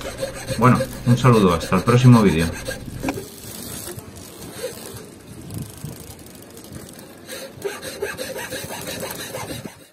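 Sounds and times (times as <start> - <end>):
hand saw cutting wood: 0.0 - 3.3, 7.3 - 9.9.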